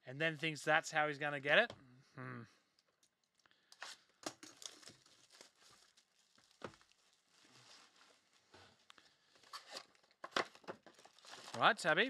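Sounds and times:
plastic wrap crinkling and tearing: 3.3 - 12.0.

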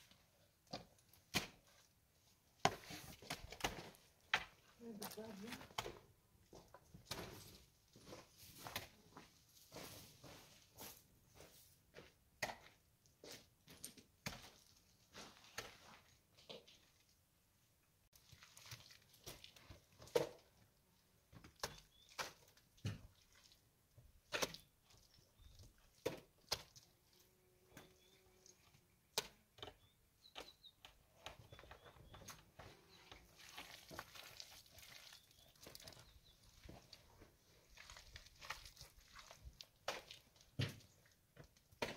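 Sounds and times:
hand scraping gravelly soil: 32.8 - 40.5.

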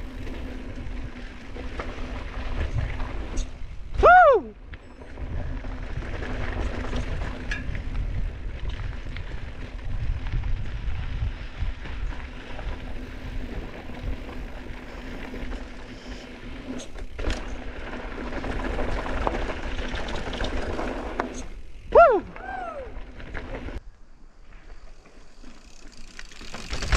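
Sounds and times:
tyres rolling over dirt: 0.0 - 4.0, 4.8 - 21.7, 22.4 - 23.8, 24.5 - 26.9
bike rattle: 4.8 - 21.9, 25.3 - 26.9
wind buffeting microphone: 5.2 - 15.0.

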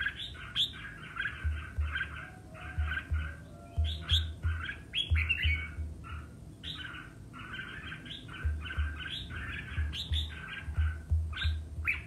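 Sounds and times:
bulbul singing: 0.0 - 12.0
dull low thumps: 1.4 - 6.2, 8.4 - 12.0.

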